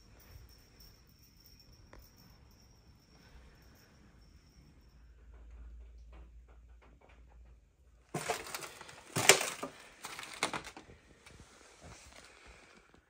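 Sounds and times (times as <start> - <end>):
footsteps crunching on debris: 8.2 - 10.7.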